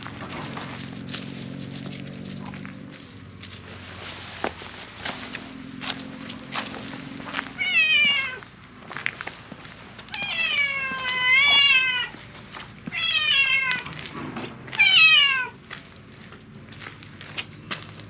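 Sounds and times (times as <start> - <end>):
cat meowing loudly: 7.5 - 8.5, 10.1 - 12.2, 12.9 - 14.1, 14.7 - 15.6.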